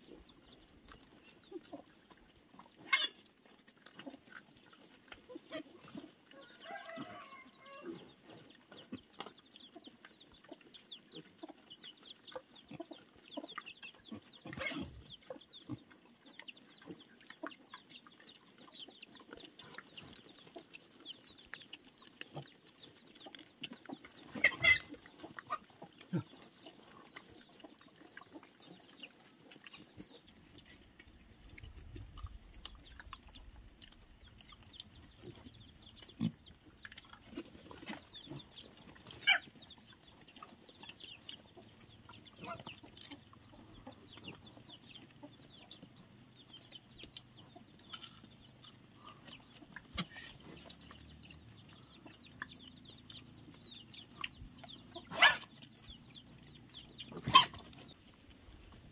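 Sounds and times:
chickens clucking: 0:00.0 - 0:58.9
chicks peeping: 0:00.0 - 0:58.9.

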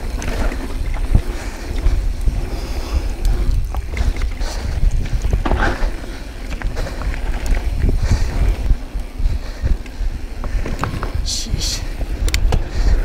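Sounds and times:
bike clicks and rattles: 0:00.0 - 0:13.0
tyres rolling on dirt and stones: 0:00.0 - 0:13.0
wind rumble on microphone: 0:00.0 - 0:13.0
heavy breathing: 0:01.1 - 0:13.0.

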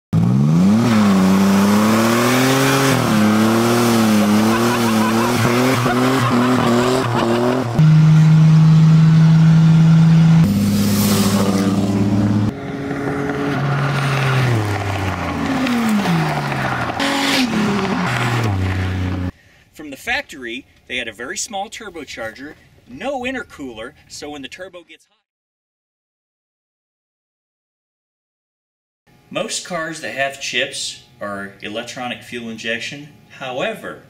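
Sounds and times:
car engines revving: 0:00.2 - 0:19.4
tires squealing: 0:00.4 - 0:19.3.

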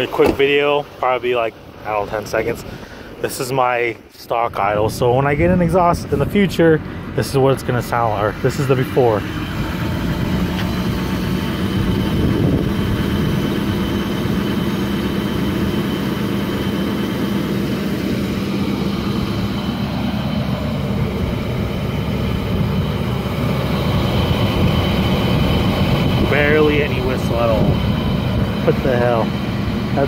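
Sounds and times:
diesel truck engine idling: 0:00.0 - 0:30.0.

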